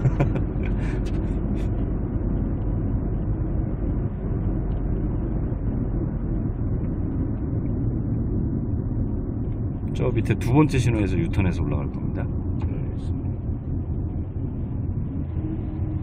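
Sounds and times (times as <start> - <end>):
car engine and tyre rumble: 0.0 - 16.0.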